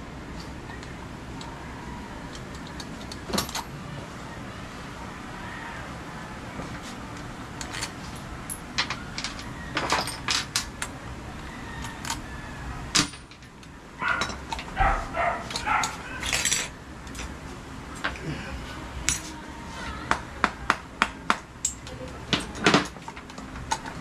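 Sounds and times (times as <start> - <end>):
metal tools clinking and tapping: 8.5 - 10.6, 13.0 - 17.4, 21.6 - 24.0.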